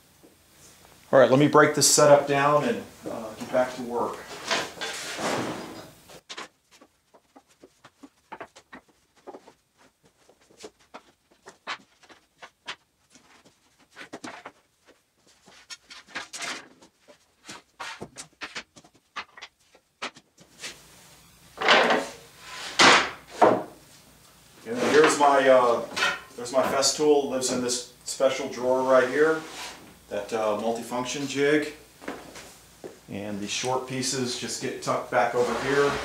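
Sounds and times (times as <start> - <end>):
wooden boards scraping: 4.2 - 9.6, 21.6 - 23.7, 24.7 - 26.0, 28.8 - 29.9, 35.2 - 36.0.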